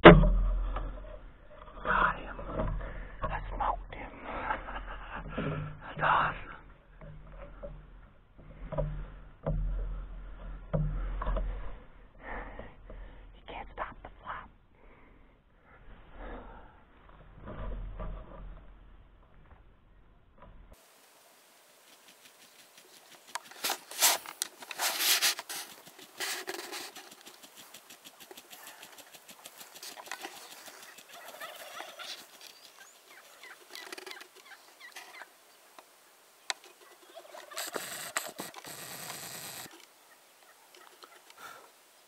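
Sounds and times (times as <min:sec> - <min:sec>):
turkeys gobbling: 0:25.6 - 0:35.3, 0:36.8 - 0:41.6.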